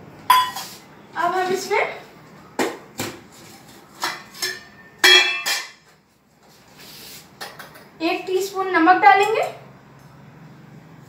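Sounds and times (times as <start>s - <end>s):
metal bowls and utensils clinking: 0.3s - 0.8s, 3.4s - 6.0s.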